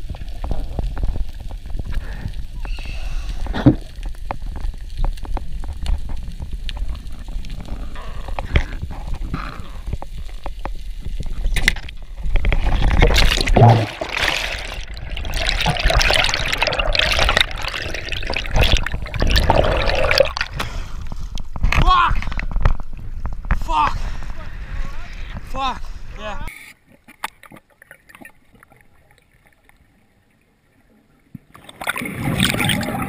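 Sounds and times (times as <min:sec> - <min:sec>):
underwater low rumble: 0:00.0 - 0:26.2
rush of bubbling water: 0:03.4 - 0:21.2, 0:31.4 - 0:33.0.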